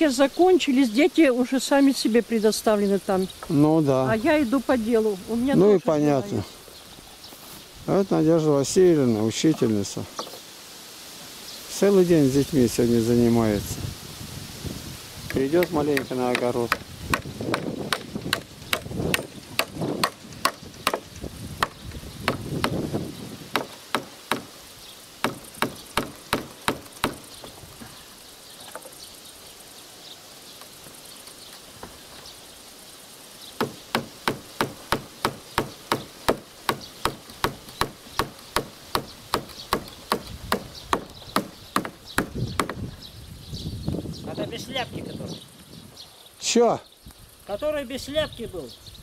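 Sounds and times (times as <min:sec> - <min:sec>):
hammer driving nails into log: 0:23.5 - 0:24.5, 0:25.2 - 0:27.2, 0:33.6 - 0:42.8.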